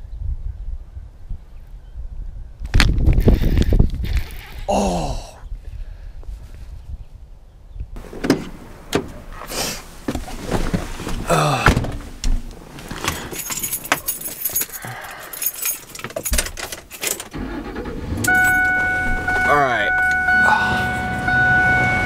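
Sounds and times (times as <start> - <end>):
car door sounds: 8.0 - 14.1, 18.1 - 22.0
keys jangling: 13.0 - 17.3.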